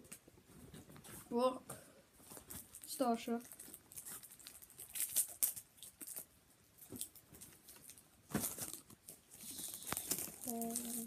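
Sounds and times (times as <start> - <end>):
cards rustling: 6.9 - 11.0.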